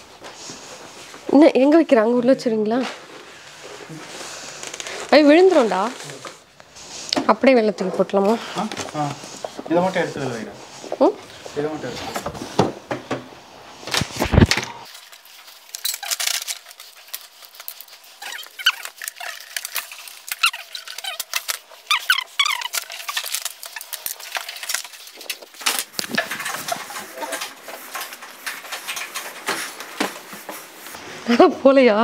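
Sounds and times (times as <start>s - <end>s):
short high squeaks: 20.3s - 23.3s.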